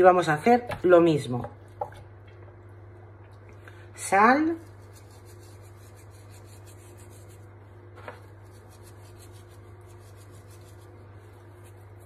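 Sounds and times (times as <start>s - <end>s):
steady low hum: 0.0s - 12.0s
hands rubbing salt into meat: 4.4s - 7.6s, 8.2s - 12.0s.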